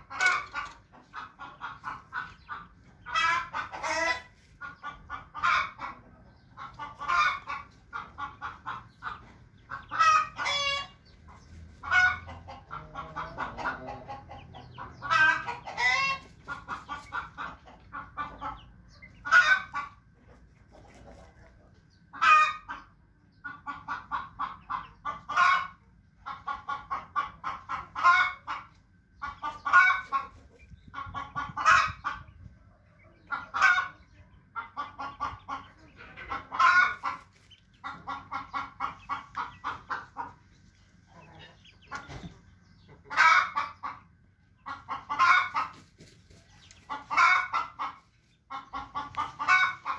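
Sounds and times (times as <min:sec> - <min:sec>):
chickens clucking: 0:00.0 - 0:49.9
chicken calling loudly: 0:03.1 - 0:06.0, 0:06.9 - 0:11.0, 0:15.0 - 0:16.4.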